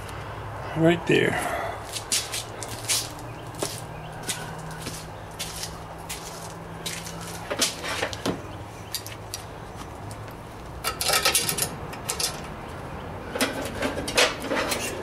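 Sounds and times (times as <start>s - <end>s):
metal bars clanking: 10.8s - 12.5s.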